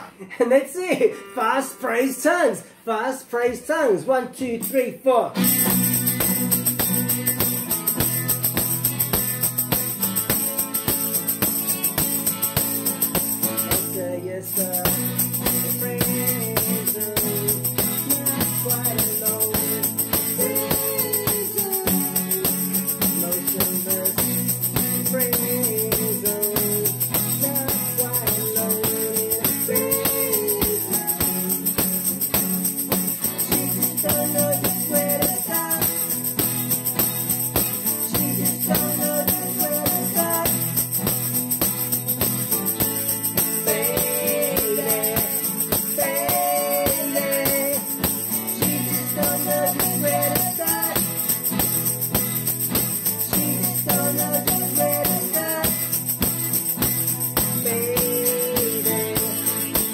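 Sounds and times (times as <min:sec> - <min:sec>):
acoustic guitar strummed: 0:05.4 - 0:59.9
electric guitar: 0:05.4 - 0:59.9
tambourine jingle: 0:05.4 - 0:59.9
male lead vocal: 0:13.8 - 0:32.3, 0:33.4 - 0:36.3, 0:37.9 - 0:40.8, 0:43.3 - 0:51.5, 0:53.3 - 0:56.1, 0:57.6 - 0:59.9.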